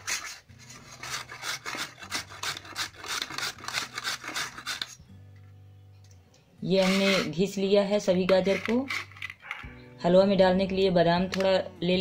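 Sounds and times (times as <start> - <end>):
carrots grated on metal grater: 0.0 - 5.0, 6.8 - 7.4.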